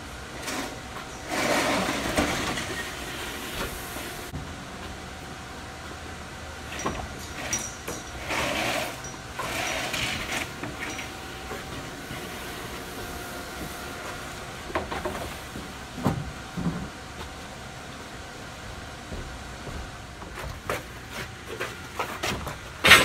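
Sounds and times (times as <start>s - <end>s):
drywall sheets scraping: 0.4s - 3.6s.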